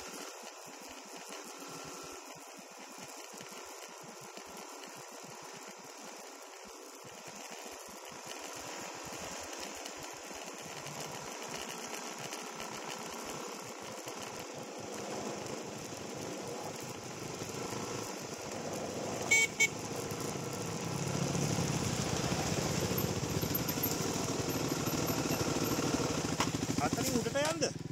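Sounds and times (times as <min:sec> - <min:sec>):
dirt bike engines: 0:00.0 - 0:27.9
vehicle horn double beep: 0:19.3 - 0:19.8.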